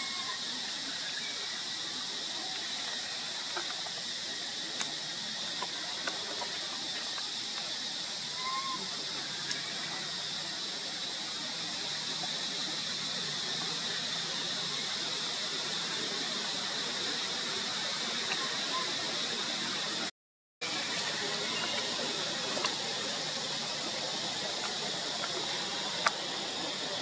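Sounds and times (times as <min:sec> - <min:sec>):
outdoor ambient hiss: 0:00.0 - 0:27.0
faint ticks: 0:02.6 - 0:07.7.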